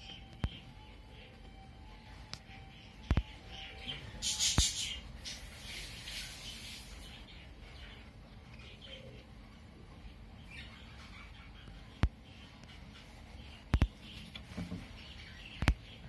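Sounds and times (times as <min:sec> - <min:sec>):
budgerigars chattering: 0:02.9 - 0:05.6.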